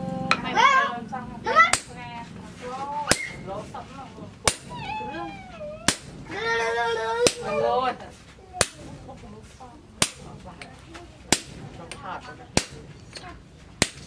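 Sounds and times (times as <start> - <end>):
sledgehammer striking chisel: 3.1 - 3.5, 4.4 - 4.8, 10.0 - 10.7, 11.3 - 14.0
loud wavering animal call: 4.7 - 7.2.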